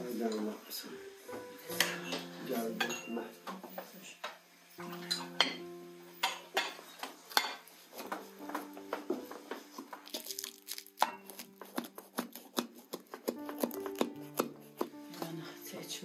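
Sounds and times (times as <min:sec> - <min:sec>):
background music with held notes: 0:00.0 - 0:16.0
knife chopping food: 0:09.8 - 0:15.4.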